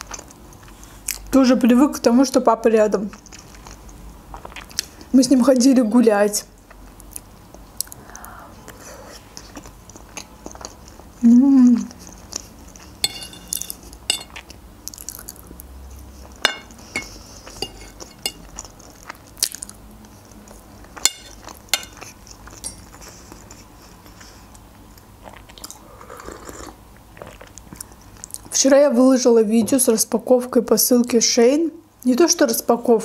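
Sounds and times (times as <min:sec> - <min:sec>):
metal fork clicking on plate: 0:13.0 - 0:14.4, 0:16.5 - 0:18.4, 0:21.0 - 0:22.0, 0:22.6 - 0:22.8.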